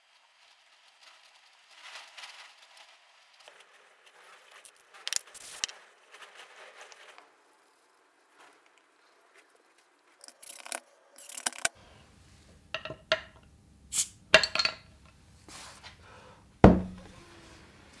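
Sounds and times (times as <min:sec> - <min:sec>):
bottle cap clattering: 0:14.3 - 0:14.9
bottle opener clinking on glass: 0:14.4 - 0:14.9
hollow knock with ringing: 0:16.6 - 0:17.1.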